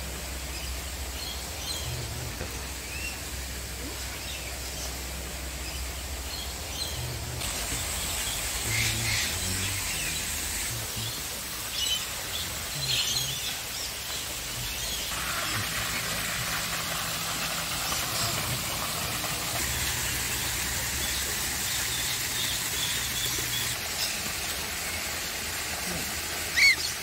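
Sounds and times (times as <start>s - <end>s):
low hum: 0.0s - 11.4s
steady hiss: 0.0s - 27.0s.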